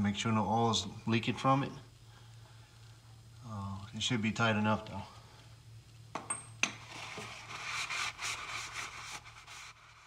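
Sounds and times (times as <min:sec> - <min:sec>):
low steady hum: 0:00.0 - 0:10.0
scratchy scraping and rustling: 0:06.8 - 0:10.0.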